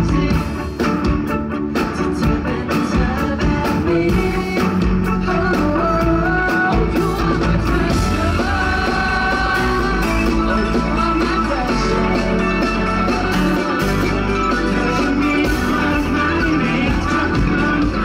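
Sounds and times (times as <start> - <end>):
person singing: 0.0 - 1.2, 1.8 - 18.0
electric guitar: 0.0 - 18.0
keyboard: 0.0 - 18.0
drum beat: 6.0 - 14.2.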